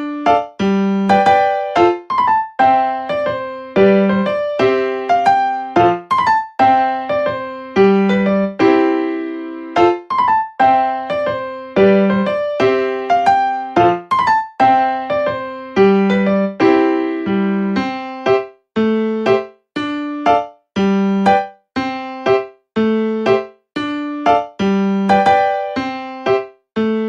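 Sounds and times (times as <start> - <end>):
electric piano tune: 0.0 - 27.0.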